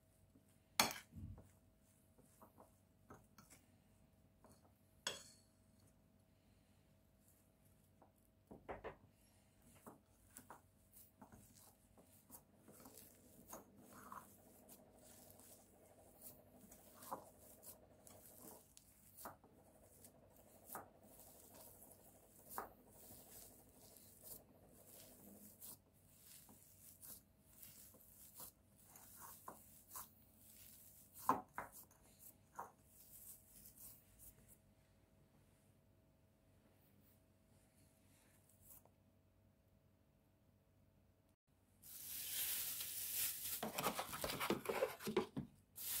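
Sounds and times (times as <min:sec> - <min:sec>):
hand kneading dough: 0:00.0 - 0:05.0, 0:07.0 - 0:34.8.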